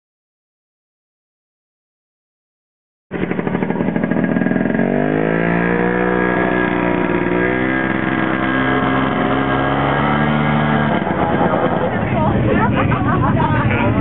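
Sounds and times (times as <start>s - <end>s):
snowmobile engine accelerating: 3.1s - 14.0s.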